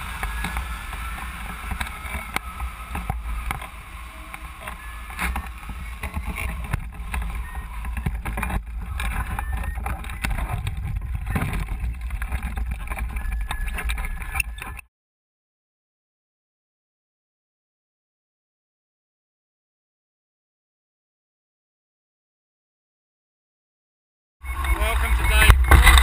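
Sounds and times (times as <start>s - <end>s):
wind buffeting microphone: 0.0s - 14.8s
knocks and crackles: 0.0s - 14.9s, 24.5s - 26.0s.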